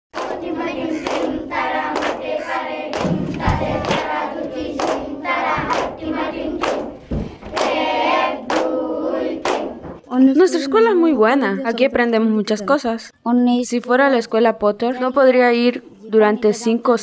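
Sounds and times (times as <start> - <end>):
children singing: 0.2 - 10.0
sharp rhythmic strikes: 0.2 - 10.0.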